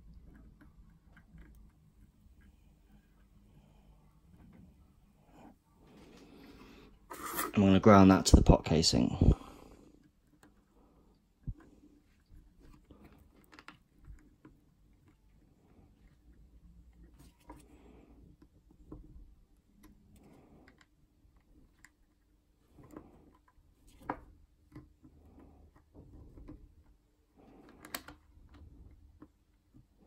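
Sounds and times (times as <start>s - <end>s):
faint steady hum: 0.0s - 30.0s
small tools and wires clicking: 27.4s - 29.8s.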